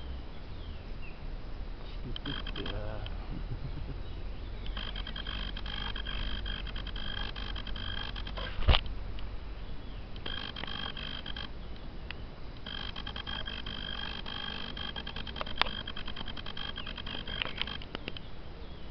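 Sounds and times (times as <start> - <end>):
insects buzzing: 0.0 - 18.9
sharp click: 2.1 - 3.2, 10.2 - 18.3.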